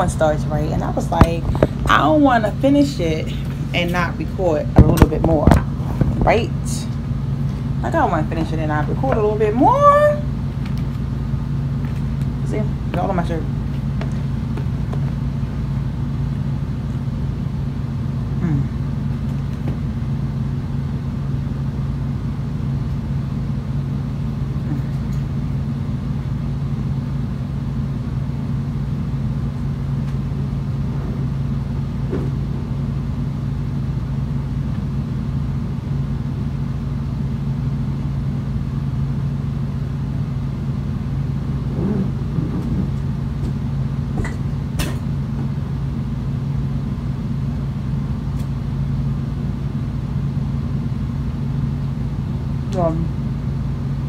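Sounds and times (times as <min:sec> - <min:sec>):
low mechanical hum: 0:00.0 - 0:54.0.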